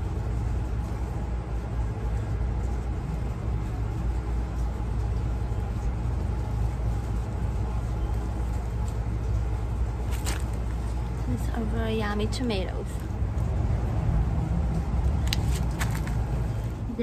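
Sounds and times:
low background rumble: 0.0 - 17.0.

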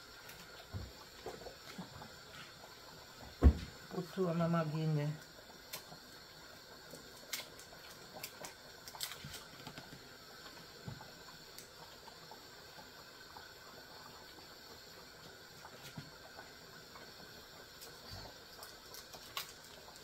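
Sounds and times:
soup boiling hiss: 0.0 - 20.0.

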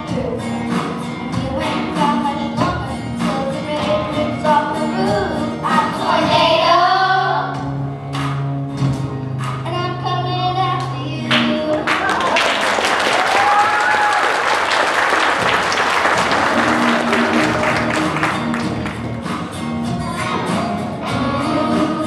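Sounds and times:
children's choir singing: 1.6 - 7.6, 16.2 - 18.8, 20.3 - 22.0
audience applause: 11.8 - 19.2
person whooping: 13.1 - 14.4.

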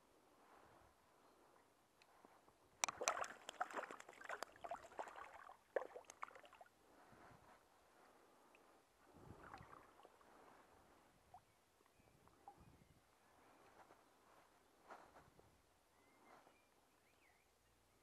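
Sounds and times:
fish splashing in water: 2.8 - 6.6.

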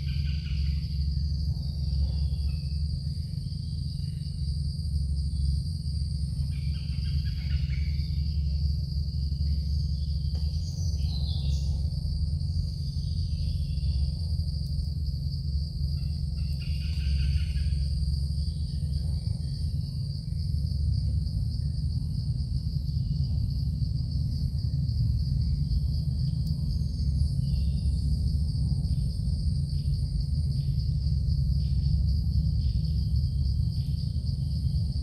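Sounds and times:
night insects chirring: 0.0 - 35.0
steady low rumble: 0.0 - 35.0.

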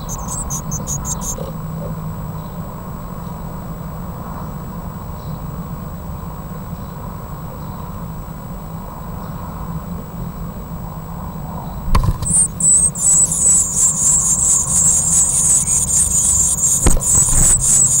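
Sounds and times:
nestlings begging calls: 0.0 - 2.0, 12.0 - 18.0
low steady hum: 8.8 - 18.0.

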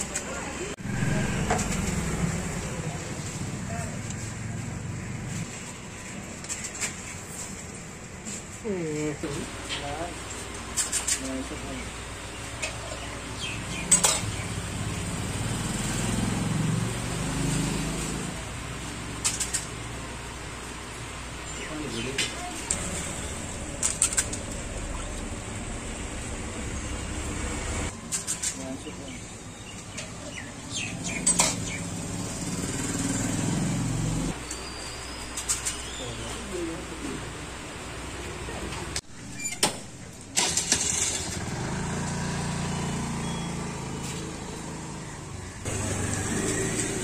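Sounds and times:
vehicle engine passing: 0.5 - 5.6, 13.5 - 19.2, 22.6 - 27.9, 30.7 - 34.4, 40.4 - 47.0.

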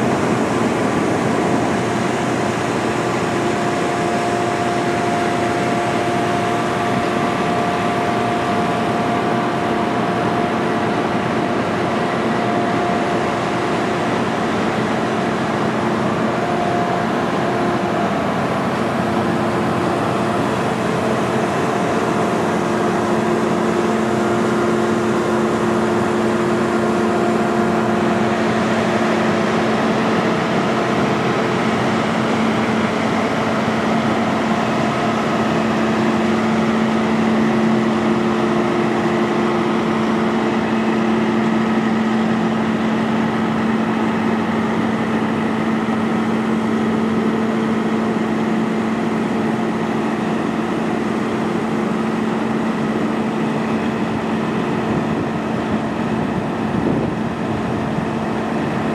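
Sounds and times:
fire truck diesel engines: 0.0 - 58.9.

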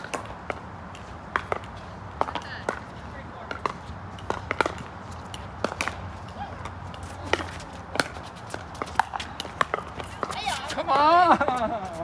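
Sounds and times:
ball bouncing on court: 1.3 - 10.8.

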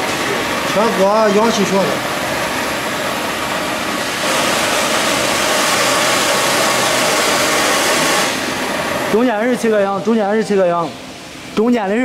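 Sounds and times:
cutting torch flame hissing: 3.8 - 8.7.

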